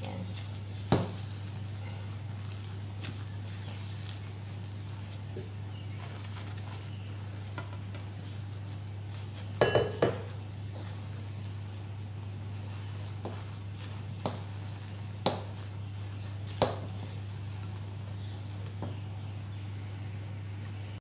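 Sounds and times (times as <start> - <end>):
steady low hum: 0.0 - 21.0
metal mixing bowl clanking: 9.6 - 10.9.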